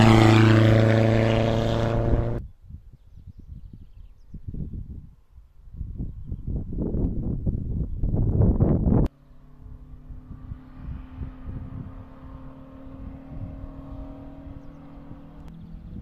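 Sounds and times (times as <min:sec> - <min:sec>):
distant race car engine: 0:00.0 - 0:02.4, 0:09.1 - 0:16.0
wind buffeting microphone: 0:00.0 - 0:16.0.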